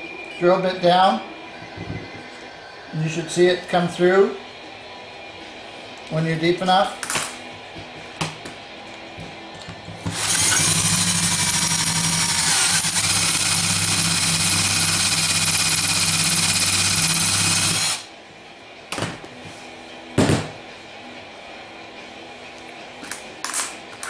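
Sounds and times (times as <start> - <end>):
electric drill whining: 10.0 - 18.1.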